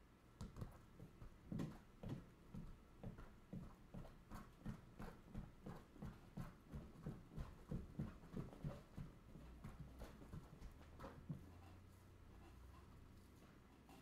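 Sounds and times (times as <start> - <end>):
ball bouncing on tile floor: 0.4 - 11.4.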